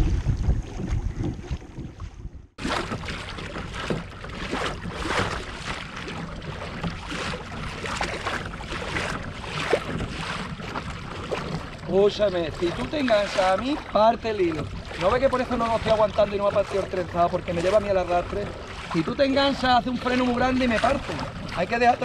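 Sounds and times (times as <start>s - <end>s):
wind on microphone: 0.0s - 13.9s
water splashing against hull: 0.0s - 22.0s.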